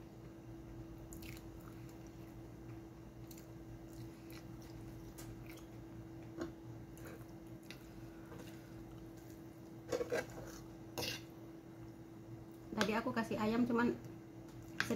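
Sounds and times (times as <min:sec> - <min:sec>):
chewing and wet mouth sounds: 0:01.1 - 0:02.4, 0:03.2 - 0:09.0.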